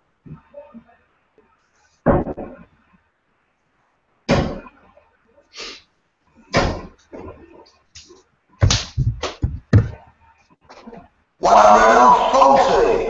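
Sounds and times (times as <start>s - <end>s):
darts thudding into dartboard: 6.5s - 7.3s.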